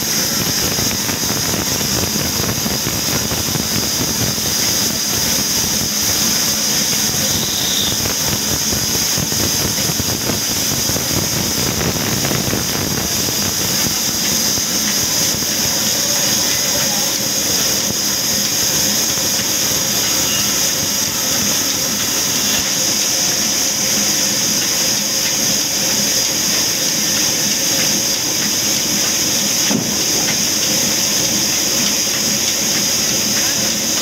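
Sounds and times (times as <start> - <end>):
high hiss: 0.0 - 34.0.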